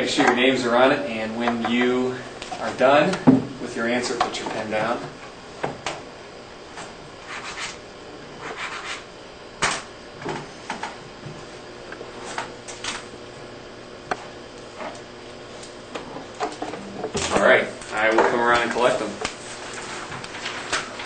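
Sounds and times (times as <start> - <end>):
pens scratching on paper: 7.3 - 7.8, 8.4 - 9.1
handling rustles at desks: 15.6 - 21.0.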